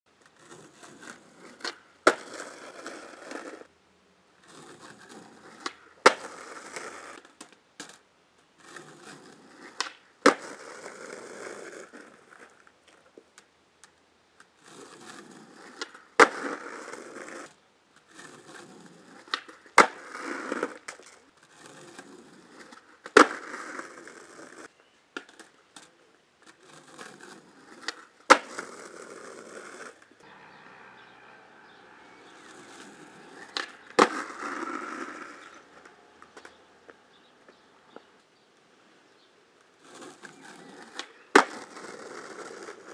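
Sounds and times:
skateboard wheels rolling on concrete: 0:00.1 - 0:42.9
skateboard tail cracks: 0:00.2 - 0:03.7, 0:04.5 - 0:08.0, 0:08.6 - 0:30.1, 0:32.4 - 0:36.6, 0:39.6 - 0:42.9
skateboard deck slapping down: 0:15.7 - 0:17.5, 0:26.9 - 0:30.0, 0:32.5 - 0:35.6, 0:39.8 - 0:42.9.

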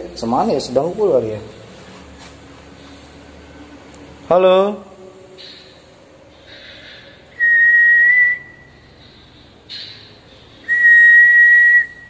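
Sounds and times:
person whistling high notes: 0:07.4 - 0:08.8, 0:10.6 - 0:12.0.

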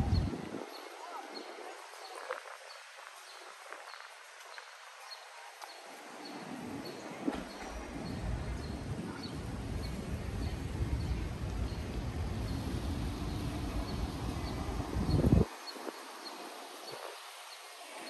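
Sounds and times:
low street rumble: 0:00.0 - 0:02.0, 0:06.0 - 0:18.0.

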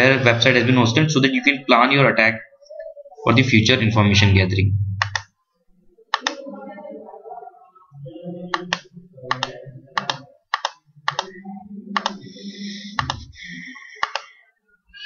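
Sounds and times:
low background murmur: 0:00.0 - 0:15.0
mouse and keyboard clicks: 0:08.6 - 0:11.3, 0:12.0 - 0:12.2, 0:13.0 - 0:13.3, 0:14.0 - 0:14.3.

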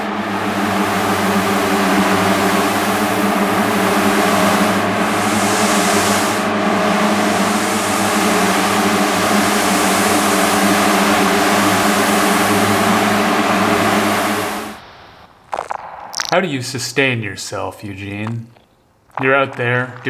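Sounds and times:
loud hiss: 0:00.3 - 0:13.2.

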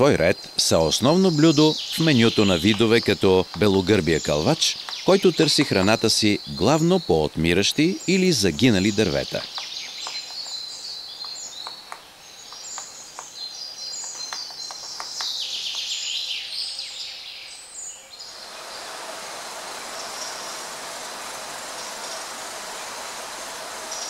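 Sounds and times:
birds chirping and singing: 0:00.0 - 0:24.0
woodpecker tapping on wood: 0:02.4 - 0:04.0, 0:04.8 - 0:05.6, 0:09.4 - 0:16.1
steady rushing noise: 0:18.3 - 0:24.0.

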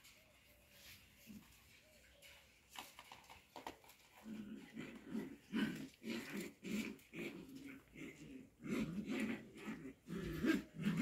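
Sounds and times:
dogs growling: 0:04.1 - 0:11.0.

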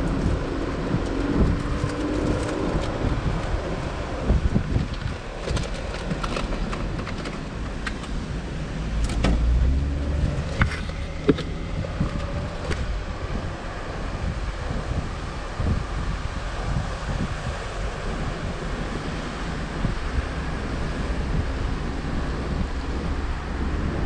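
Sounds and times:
engine and tyre rumble: 0:00.0 - 0:24.0
wind noise: 0:00.0 - 0:24.0.

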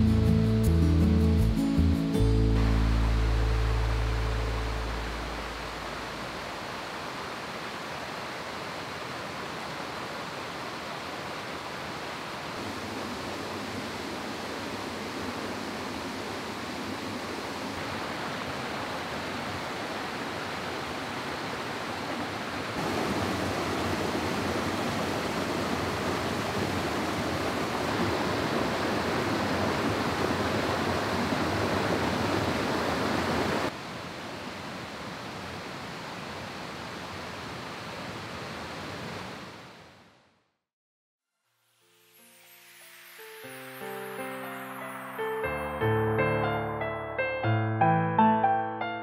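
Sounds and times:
rushing mountain stream: 0:00.0 - 0:40.1
water cascading over rocks: 0:02.6 - 0:39.6.

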